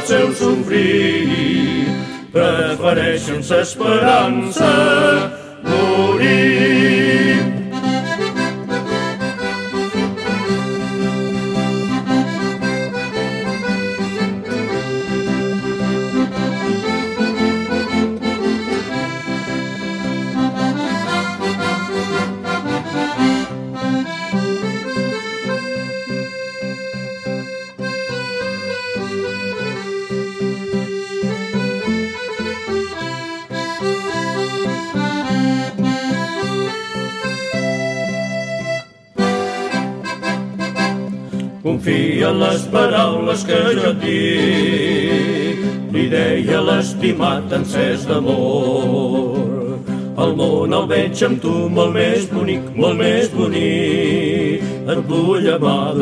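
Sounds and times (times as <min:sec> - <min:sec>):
accordion melody: 0:00.0 - 0:56.0.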